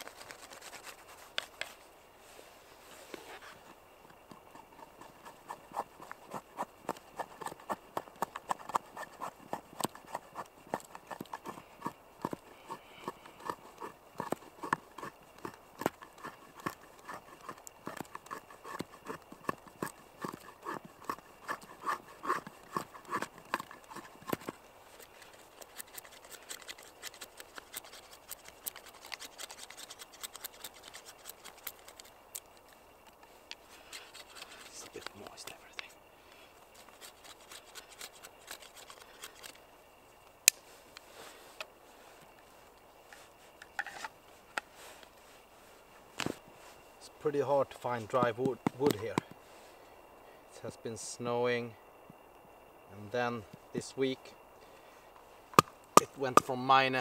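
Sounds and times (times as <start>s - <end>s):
knife carving wood: 0.0s - 1.7s, 4.2s - 32.7s, 33.6s - 35.5s, 36.7s - 39.6s.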